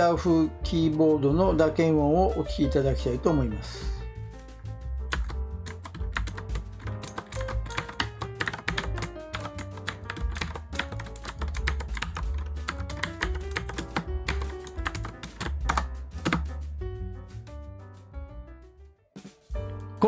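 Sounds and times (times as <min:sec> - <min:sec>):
background music: 0:00.0 - 0:20.0
clicky mechanical keyboard typing: 0:05.1 - 0:16.5.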